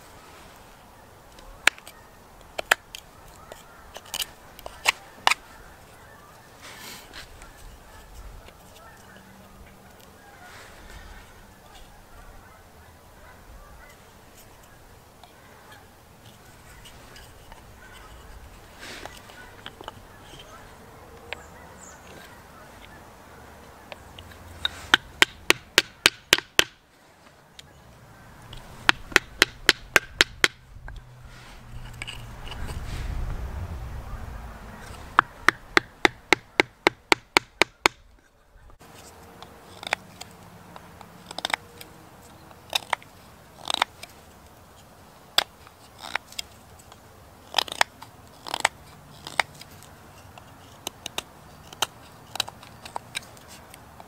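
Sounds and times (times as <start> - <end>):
blade clicking into wood: 24.9 - 26.8
wooden baton tapping knife spine: 24.9 - 26.8, 28.8 - 30.6, 35.2 - 38.1.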